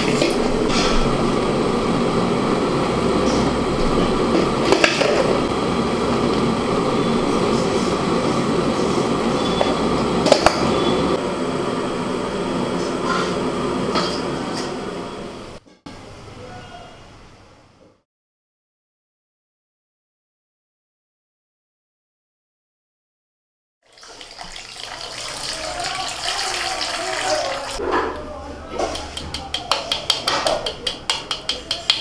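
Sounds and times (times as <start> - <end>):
water boiling in a pot: 23.8 - 27.8.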